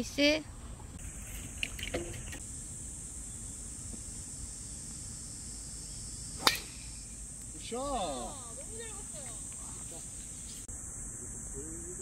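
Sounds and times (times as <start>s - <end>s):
golf club striking ball: 6.4s - 7.5s.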